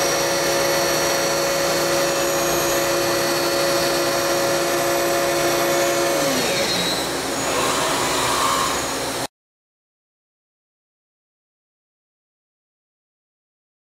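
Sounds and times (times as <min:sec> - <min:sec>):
motor whine spinning down: 0:00.0 - 0:09.3.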